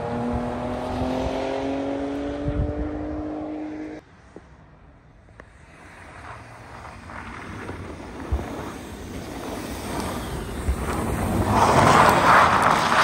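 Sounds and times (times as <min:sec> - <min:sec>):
car engine and tyres in snow: 0:00.0 - 0:13.0.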